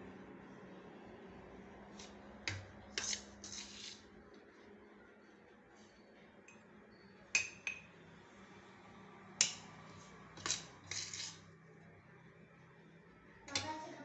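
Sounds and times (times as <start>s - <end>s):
utensil clinking against bowl: 7.4s - 7.9s.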